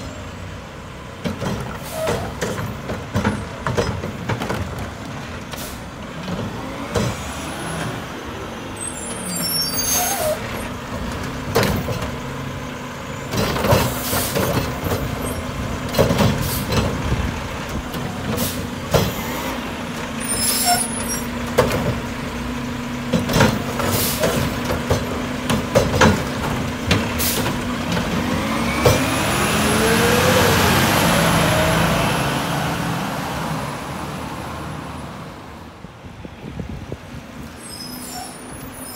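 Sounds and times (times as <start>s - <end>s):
diesel truck engine: 0.0s - 38.9s
cart and hopper banging: 1.1s - 8.6s, 10.1s - 32.2s.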